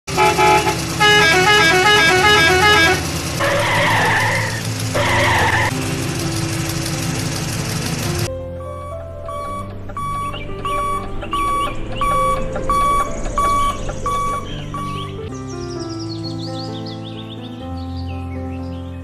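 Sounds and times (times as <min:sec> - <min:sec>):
harsh horn blasts: 0:00.1 - 0:05.8, 0:08.6 - 0:15.2
musical vehicle horn tune: 0:00.1 - 0:06.0, 0:08.0 - 0:15.3.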